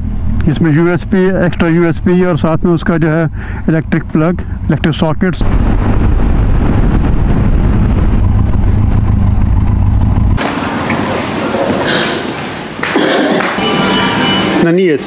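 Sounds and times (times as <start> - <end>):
motorcycle engine running: 6.2 - 10.4.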